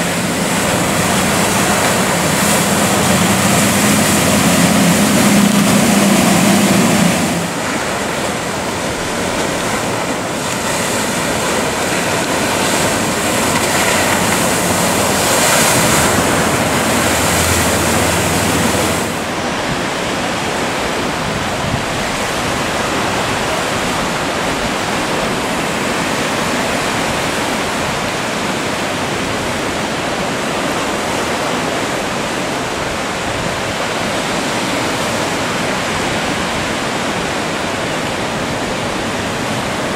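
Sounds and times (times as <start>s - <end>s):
wind on microphone: 0.0s - 31.8s
ocean surf rushing: 0.0s - 39.9s.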